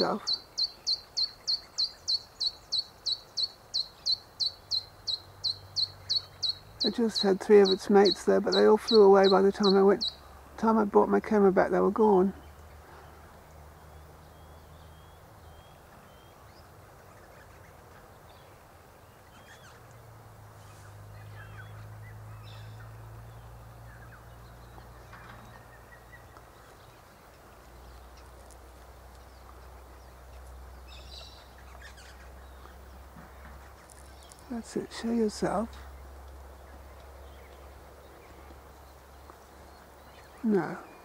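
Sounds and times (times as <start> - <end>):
bird chirps and calls: 0.0 - 10.8, 13.8 - 19.9, 29.2 - 36.0, 36.6 - 41.0.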